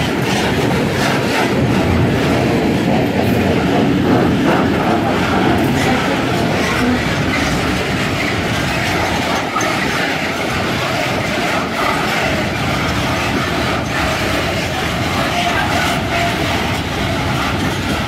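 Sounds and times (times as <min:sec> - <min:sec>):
freight train wheels rumbling: 0:00.0 - 0:18.0
wheels clacking on rail joints: 0:00.0 - 0:18.0.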